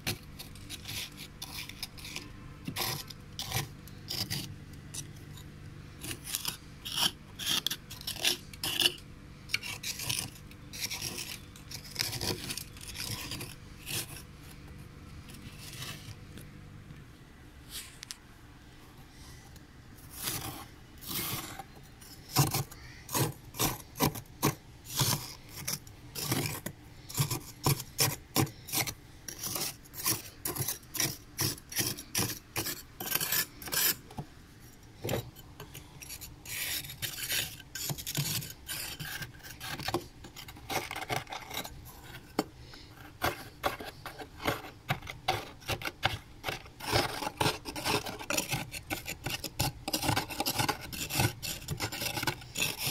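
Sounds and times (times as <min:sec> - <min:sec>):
spoon scraping frost: 0:00.0 - 0:16.3, 0:20.0 - 0:34.2, 0:35.0 - 0:52.9.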